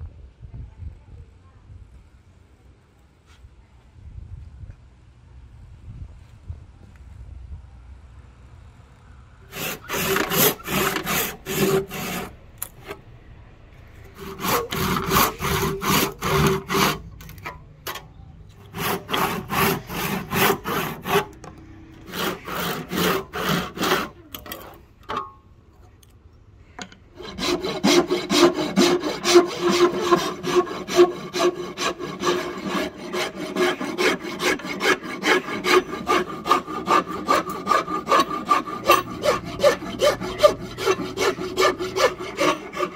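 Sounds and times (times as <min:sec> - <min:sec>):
hand tool rasping wood: 0:09.5 - 0:13.0, 0:14.1 - 0:17.1, 0:18.6 - 0:24.7, 0:27.2 - 0:42.9.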